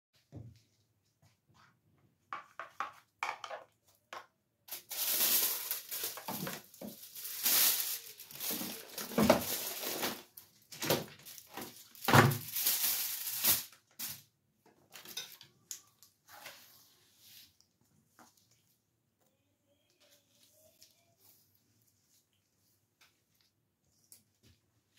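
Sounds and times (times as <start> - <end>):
scraping and rustling: 4.7 - 10.4.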